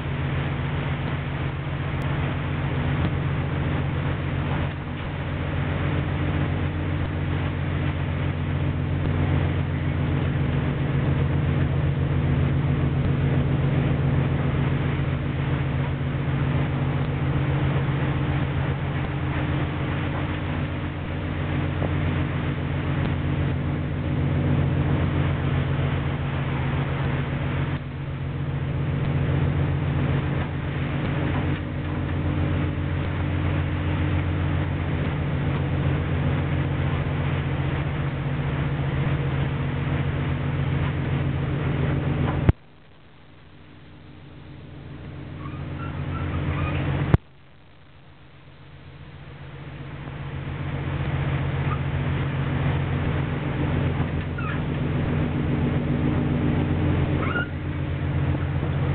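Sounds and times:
sea rushing: 0.0s - 58.9s
ship engine and machinery drone: 0.0s - 58.9s
storm wind: 49.1s - 58.9s.

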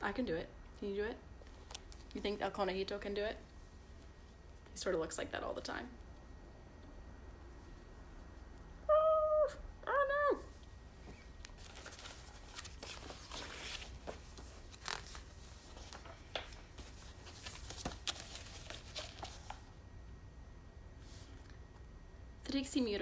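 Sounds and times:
book pages rustling: 11.4s - 19.7s.

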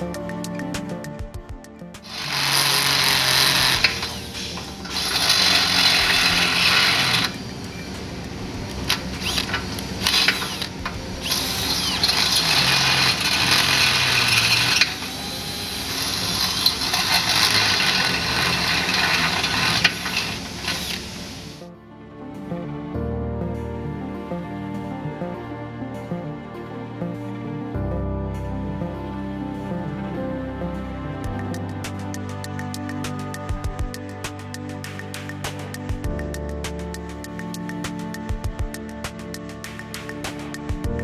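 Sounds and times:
background music: 0.0s - 41.0s
power drill drilling into steel: 2.0s - 7.8s, 8.9s - 21.6s.

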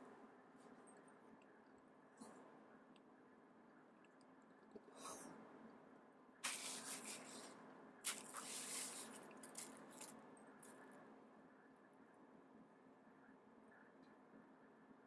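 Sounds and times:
bubble wrap crinkling: 8.1s - 10.1s.

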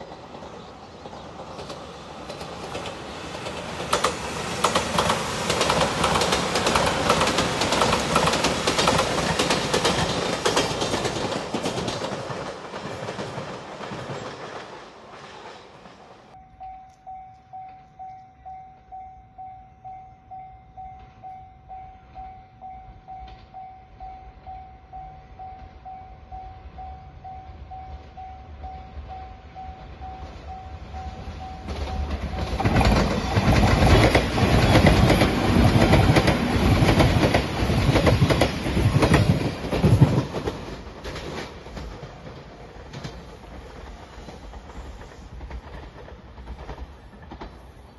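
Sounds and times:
train wheels clickety-clack: 0.0s - 16.4s, 23.1s - 23.6s, 27.7s - 47.9s
train passing: 0.0s - 47.9s
level-crossing warning bell: 16.3s - 35.6s.

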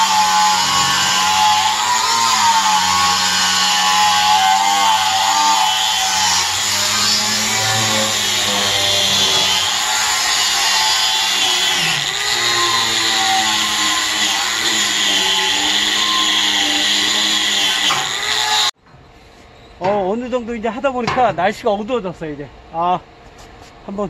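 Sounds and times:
angle grinder motor whine: 0.0s - 18.8s.

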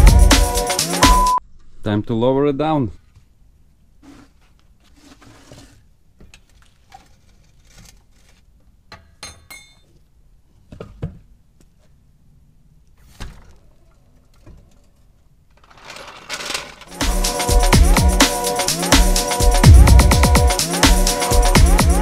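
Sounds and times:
music: 0.0s - 1.4s, 16.9s - 22.0s.

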